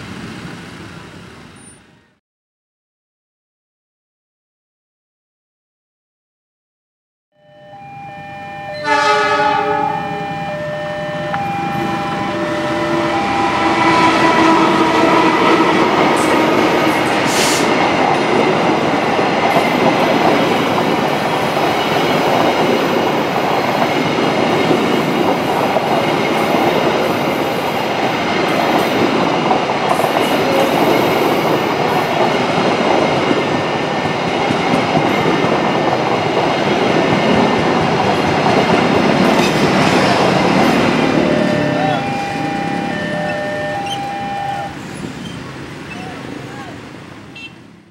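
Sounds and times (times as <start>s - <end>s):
locomotive horn blast: 8.6s - 17.8s, 39.8s - 44.8s, 47.3s - 47.6s
train wheels rumbling over rails: 9.4s - 47.9s.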